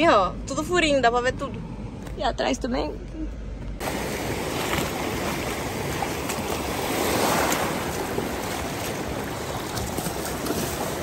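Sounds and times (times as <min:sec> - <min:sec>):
surf washing over sand: 0:03.8 - 0:11.0.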